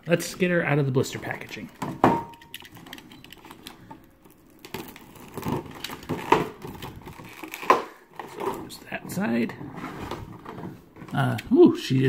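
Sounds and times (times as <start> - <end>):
plastic packaging crinkling: 2.5 - 8.8.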